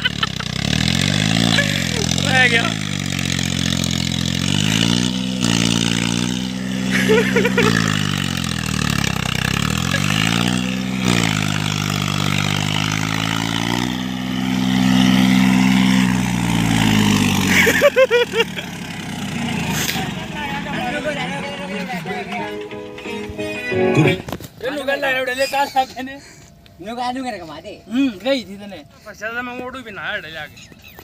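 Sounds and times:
tractor diesel engine revving: 0.0s - 24.4s.

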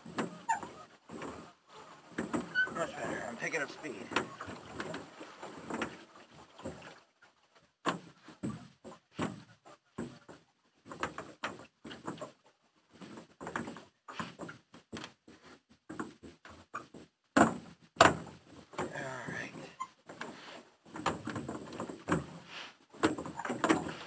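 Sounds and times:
oars splashing in water: 0.0s - 8.5s, 18.0s - 24.0s
oars creaking in oarlocks: 0.0s - 24.0s.

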